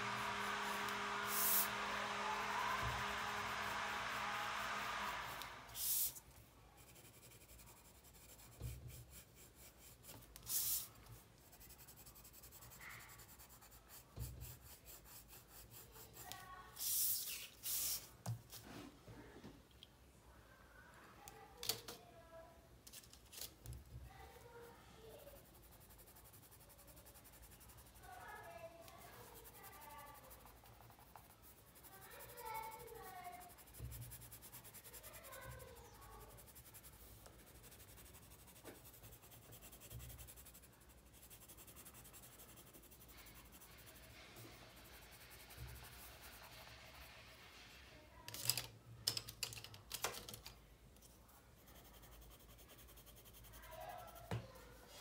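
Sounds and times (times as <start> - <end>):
pencil scratching on paper: 0.0 - 6.2, 6.8 - 18.1, 24.1 - 47.7, 51.0 - 55.0.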